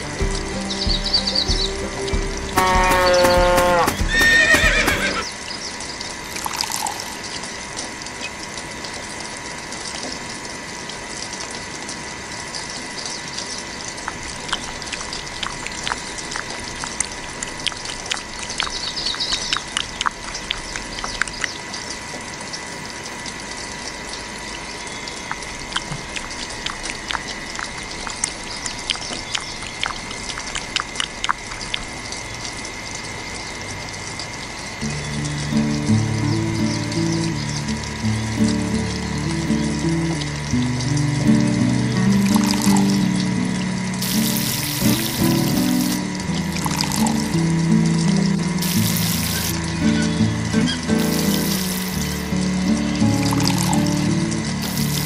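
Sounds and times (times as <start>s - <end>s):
steady hiss: 0.0s - 55.0s
horse whinnying: 3.1s - 5.3s.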